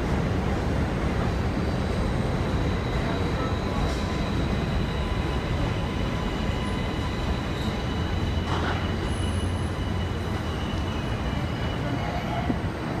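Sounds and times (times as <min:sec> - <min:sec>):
train wheels rumbling on rails: 0:00.0 - 0:13.0
high-pitched wheel squeal: 0:02.6 - 0:12.5.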